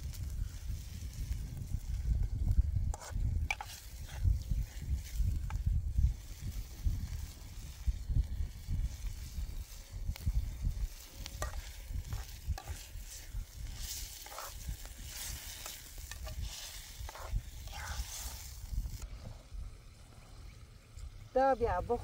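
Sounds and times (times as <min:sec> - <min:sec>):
fire clicks: 0:00.0 - 0:19.1
sizzling hiss: 0:00.0 - 0:22.0
metal spoon scraping a pot: 0:02.9 - 0:04.3, 0:11.4 - 0:14.6, 0:15.2 - 0:18.5.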